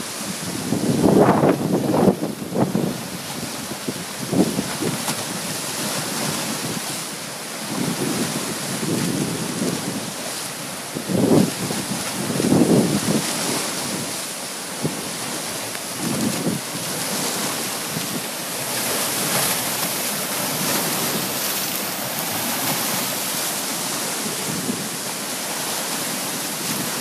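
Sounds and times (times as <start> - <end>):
wind gusts buffeting microphone: 0.0 - 7.0, 7.6 - 10.2, 10.8 - 14.2, 14.8 - 25.2
rushing wind: 0.0 - 27.0
waves splashing against a dock: 0.0 - 27.0.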